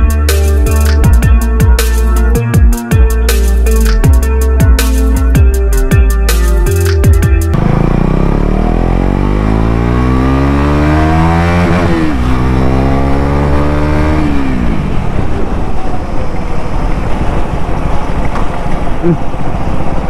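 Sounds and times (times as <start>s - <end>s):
motorcycle engine revving: 7.5s - 20.0s
wind noise: 13.6s - 20.0s.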